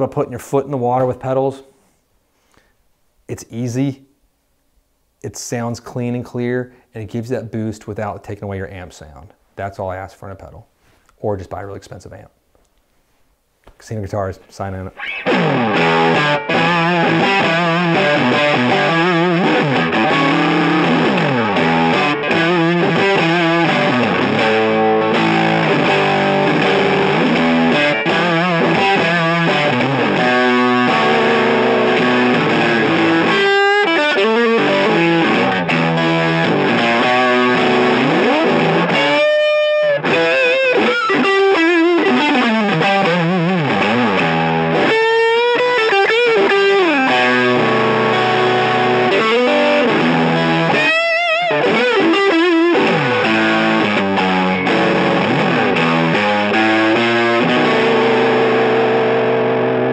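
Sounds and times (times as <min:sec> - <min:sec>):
distorted electric guitar lead: 0:14.9 - 0:59.9.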